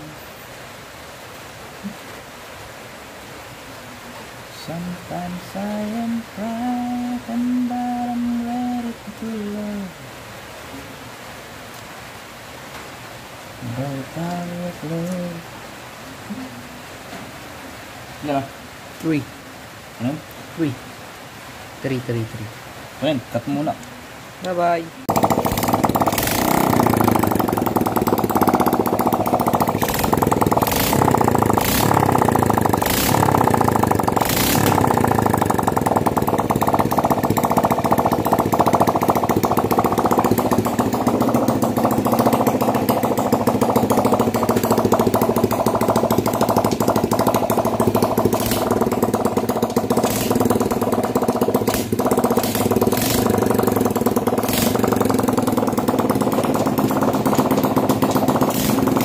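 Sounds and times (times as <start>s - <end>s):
motorcycle engine revving and idling: 25.1s - 59.0s.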